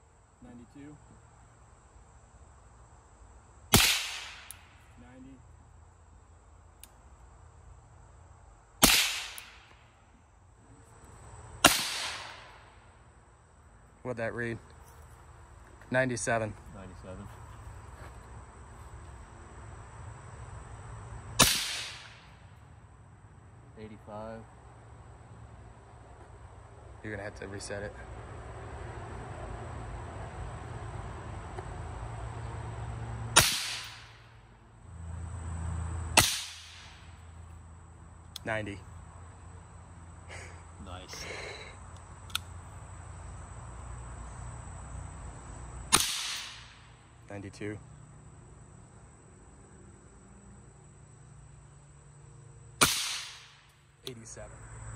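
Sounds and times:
suppressed rifle shots: 3.7 - 4.7, 8.8 - 9.7, 11.6 - 12.5, 21.4 - 22.2, 33.4 - 34.1, 36.2 - 36.9, 45.9 - 46.8, 52.8 - 53.6.

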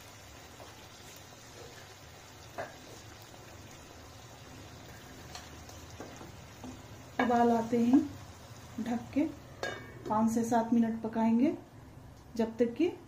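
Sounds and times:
gravy bubbling in a pan: 0.0 - 9.7.

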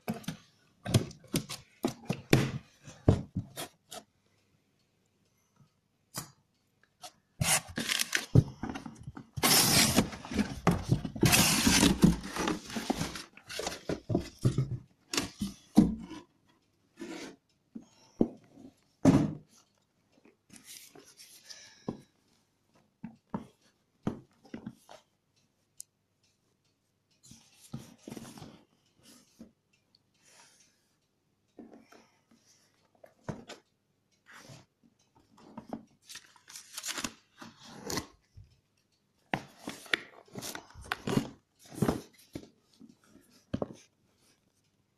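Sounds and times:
cardboard and paper rustling: 7.4 - 16.0, 35.6 - 38.1, 39.6 - 42.5.

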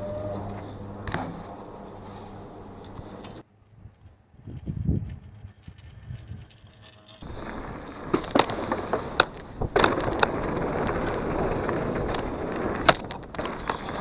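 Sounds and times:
bike tyres rushing on dirt: 1.1 - 14.0
bike clacking and rattling: 4.6 - 14.0.

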